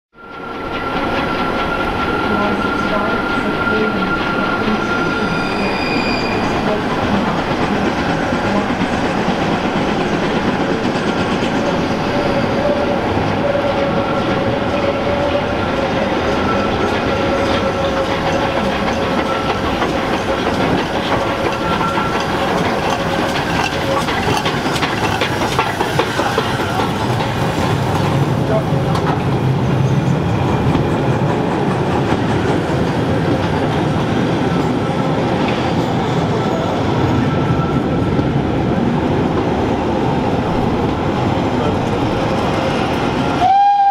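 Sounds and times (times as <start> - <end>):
train rumbling past: 0.2 - 43.9
wheels clattering over rail joints: 16.5 - 30.0.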